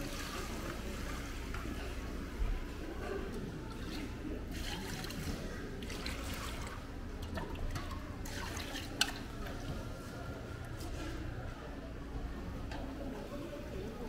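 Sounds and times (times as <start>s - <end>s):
water sloshing in a pot: 3.2s - 10.1s.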